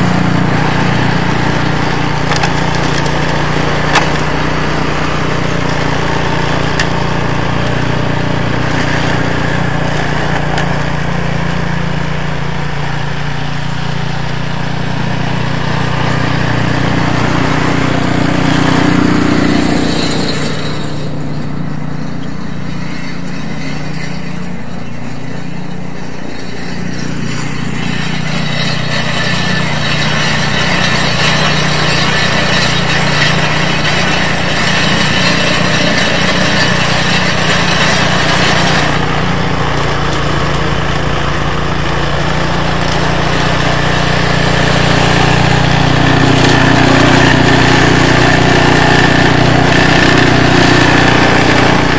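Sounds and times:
snowblower engine running: 0:00.0 - 0:51.9.

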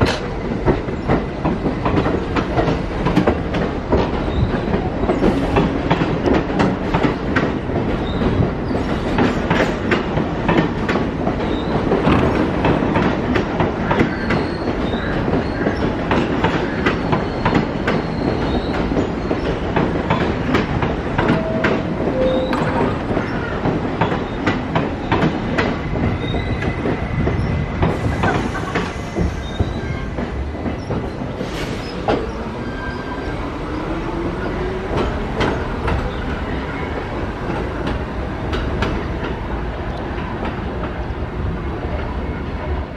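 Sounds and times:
train wheels clattering: 0:00.0 - 0:41.1.

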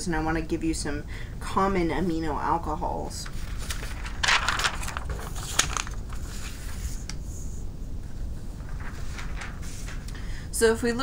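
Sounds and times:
low background hum: 0:00.0 - 0:11.0
paper rustling: 0:03.2 - 0:10.3.

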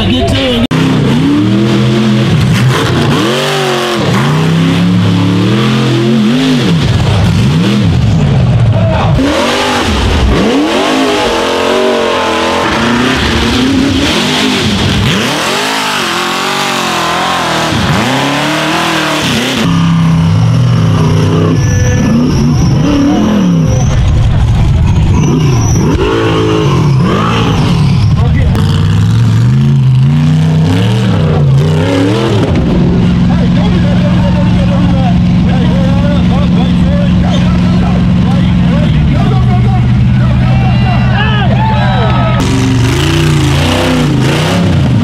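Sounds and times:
buggy engines revving hard: 0:00.0 - 0:45.0.

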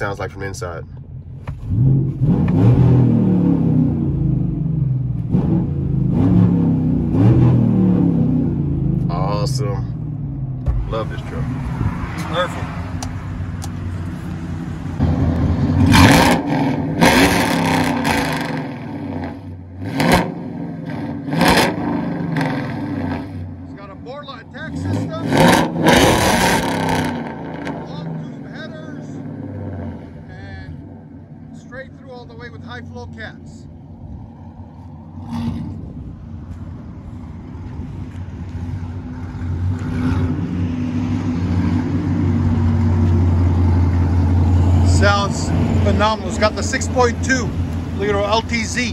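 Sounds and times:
car engine revving: 0:00.0 - 0:48.9.

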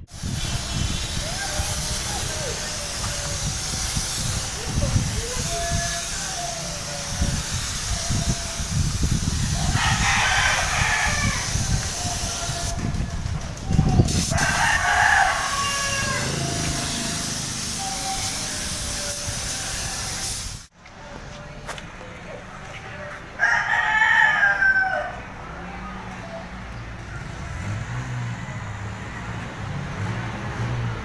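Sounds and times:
spray gun hissing: 0:00.1 - 0:13.0, 0:14.1 - 0:20.7
rooster crowing: 0:09.5 - 0:13.1, 0:14.2 - 0:18.3, 0:23.4 - 0:25.3.

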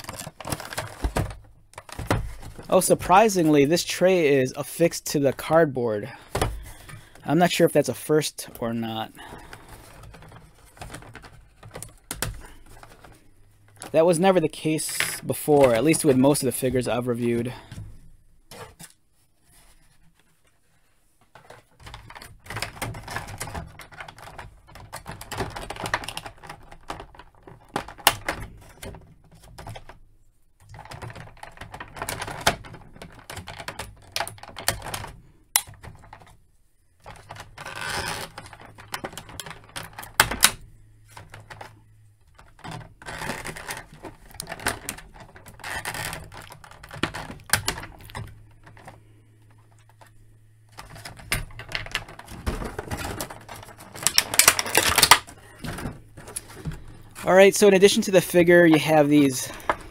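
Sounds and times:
plastic blister tray crinkling: 0:00.0 - 0:17.8, 0:37.0 - 0:59.9.

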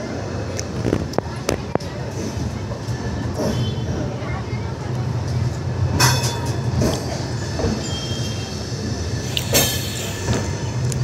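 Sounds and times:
train coaches rumbling: 0:00.0 - 0:11.0
train couplings clanking: 0:05.2 - 0:11.0.

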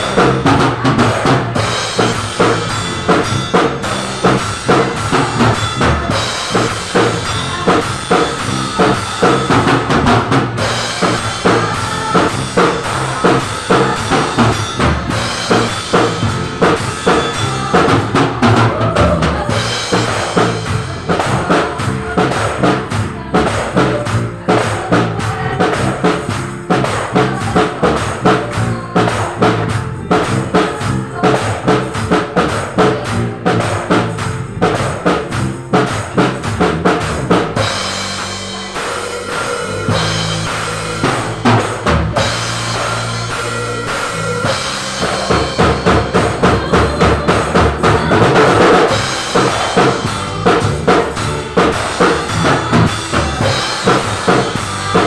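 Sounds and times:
drum kit playing a groove: 0:00.0 - 0:55.0.

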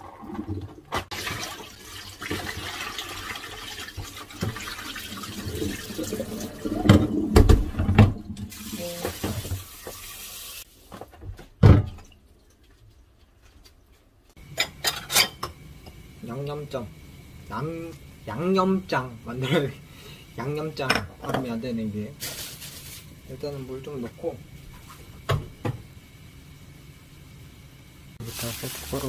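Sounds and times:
tap running into sink: 0:06.7 - 0:10.3.

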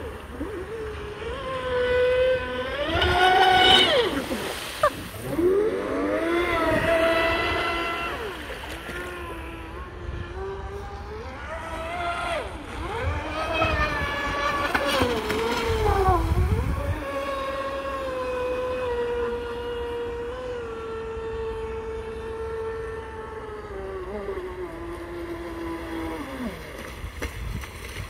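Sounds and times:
electric motor whining: 0:00.0 - 0:26.8.

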